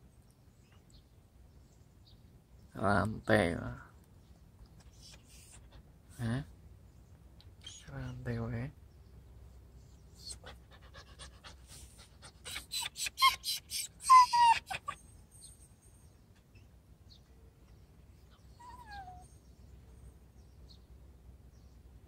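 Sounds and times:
puppy whining faintly: 0:04.8 - 0:05.8, 0:10.2 - 0:15.7, 0:18.3 - 0:20.0
puppy panting fast: 0:10.2 - 0:15.0.

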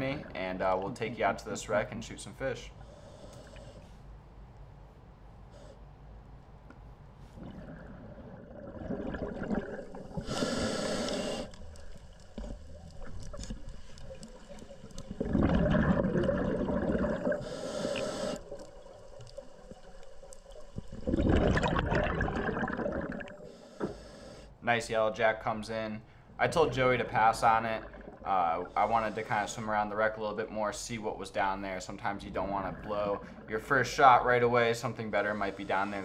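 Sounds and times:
underwater gurgling and rushing: 0:07.4 - 0:24.1, 0:26.4 - 0:29.5, 0:32.0 - 0:34.2
short hissing bursts: 0:10.2 - 0:11.5, 0:17.4 - 0:18.5.

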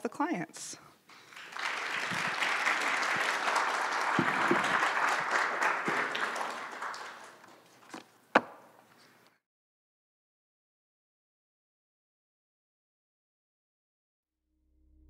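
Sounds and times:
audience applauding: 0:01.1 - 0:07.9.

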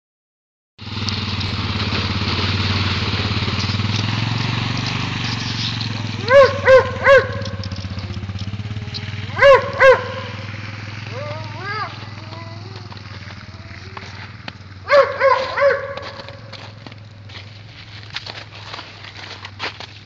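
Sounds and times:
atv engine running: 0:00.8 - 0:20.0
person calling out: 0:11.1 - 0:14.2.

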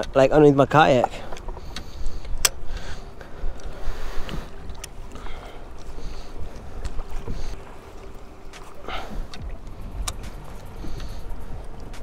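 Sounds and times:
water sloshing against a hull: 0:00.0 - 0:12.0
wind rumbling on the microphone: 0:00.0 - 0:12.0.

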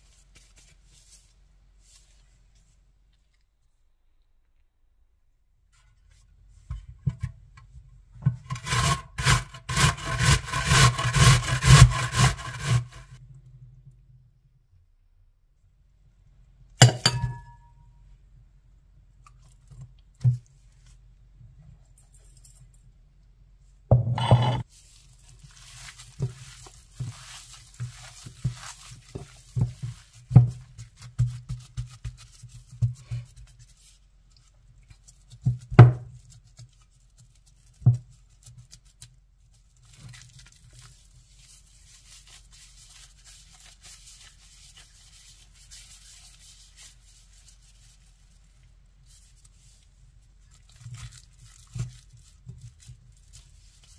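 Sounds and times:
hands kneading minced meat: 0:00.0 - 0:03.7, 0:19.0 - 0:21.7, 0:24.6 - 0:53.9
glass bowl clinking: 0:16.8 - 0:17.8, 0:24.0 - 0:24.6.

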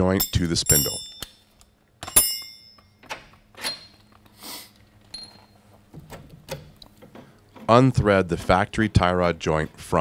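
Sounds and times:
metallic ring: 0:00.0 - 0:03.0, 0:03.6 - 0:04.2, 0:05.1 - 0:05.6
metal hardware clicks and knocks: 0:00.0 - 0:04.2.

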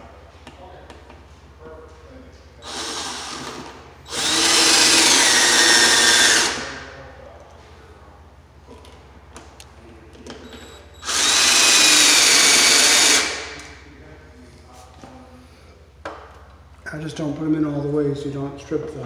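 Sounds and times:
cordless drill running: 0:02.6 - 0:06.8, 0:10.6 - 0:13.7.

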